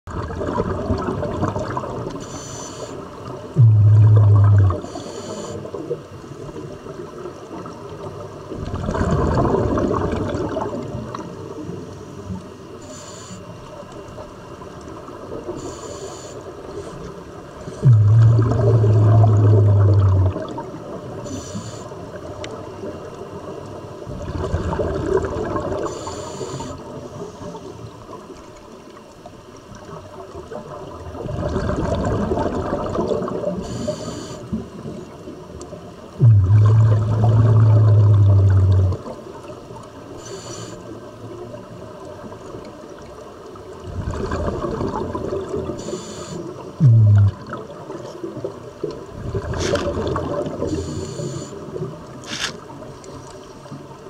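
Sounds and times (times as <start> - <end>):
diver exhaling bubbles underwater: 0.1 - 2.2, 3.5 - 6.0, 8.5 - 11.3, 17.6 - 21.3, 24.1 - 26.0, 31.0 - 34.9, 36.2 - 39.5, 43.8 - 45.9, 46.7 - 52.5
loud low steady hum: 3.6 - 5.0, 17.8 - 20.3, 36.2 - 39.0, 46.8 - 47.4.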